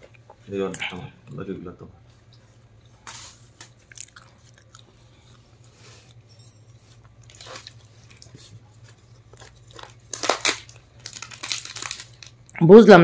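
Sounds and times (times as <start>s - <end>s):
low steady hum: 0.0s - 13.0s
faint chewing: 2.3s - 10.1s
flatbread tearing and rustling: 7.0s - 12.4s.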